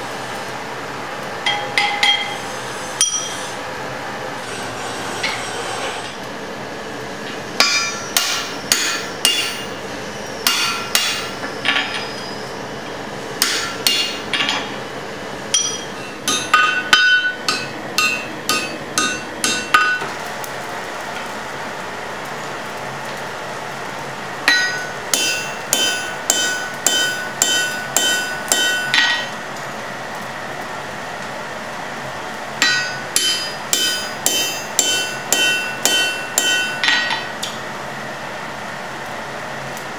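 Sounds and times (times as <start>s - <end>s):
hammer ringing on anvil: 1.4s - 2.4s, 3.0s - 3.4s, 7.6s - 9.7s, 10.4s - 12.1s, 13.4s - 14.5s, 15.5s - 20.1s, 24.5s - 29.3s, 32.6s - 37.3s.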